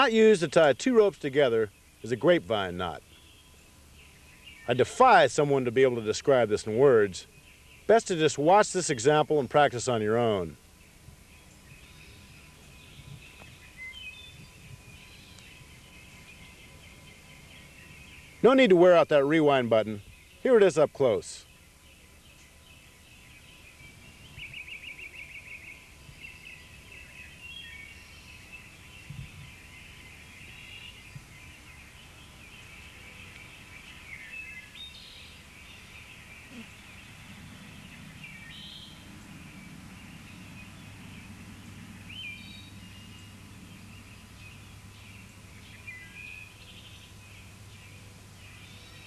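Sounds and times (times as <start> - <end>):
birds chirping: 0.0 - 49.0
faint steady background noise: 0.0 - 49.0
low hum: 35.3 - 48.4.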